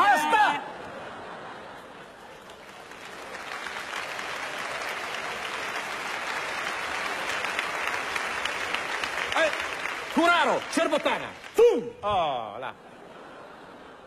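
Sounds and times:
audience applauding: 1.7s - 11.9s.

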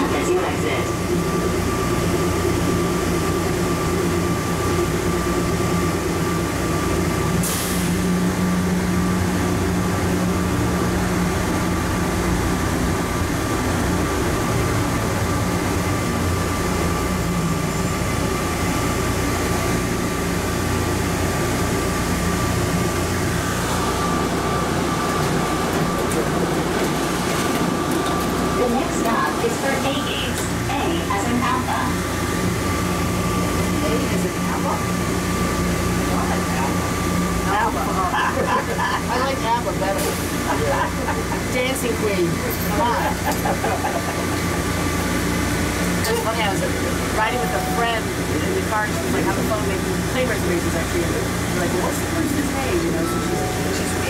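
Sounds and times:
train running in tunnel: 0.0s - 54.0s.

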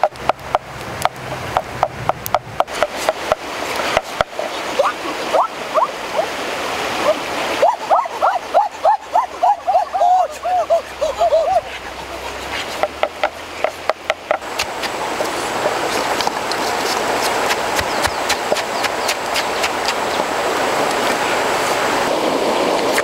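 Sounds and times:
steady rushing noise: 0.0s - 23.0s
pestle pounding in wooden mortar: 17.2s - 19.8s.

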